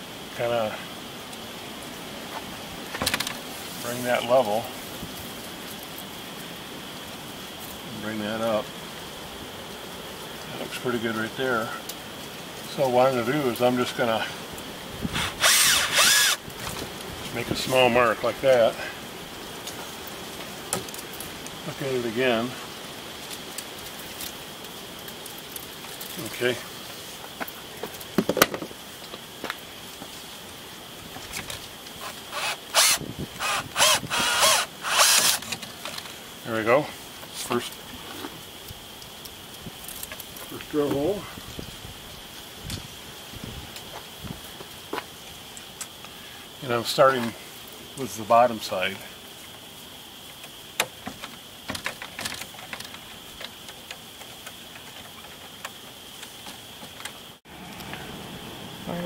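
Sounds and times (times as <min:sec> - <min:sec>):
drill boring into wood: 0:15.1 - 0:16.4, 0:32.0 - 0:35.6
handling clicks and rustling: 0:50.3 - 0:57.9.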